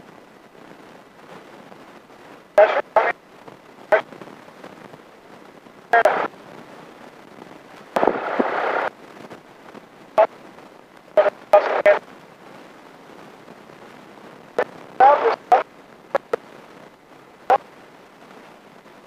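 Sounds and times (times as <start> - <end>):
low steady hiss: 0.0 - 19.0
intercom bursts: 2.6 - 3.2, 5.9 - 6.3, 8.0 - 8.9, 11.2 - 12.0, 15.0 - 16.4.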